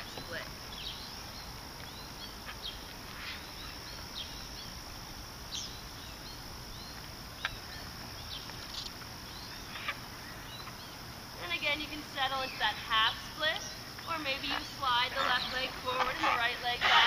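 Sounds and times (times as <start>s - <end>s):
bird chirps: 0.0s - 4.8s, 5.5s - 11.1s.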